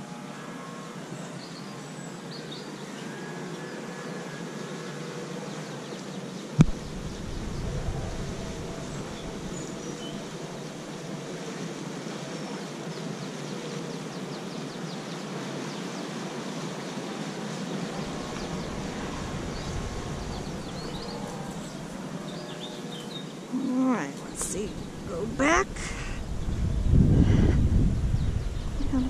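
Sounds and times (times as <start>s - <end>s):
even rushing noise: 6.6s - 11.4s, 17.4s - 22.6s, 24.2s - 29.0s.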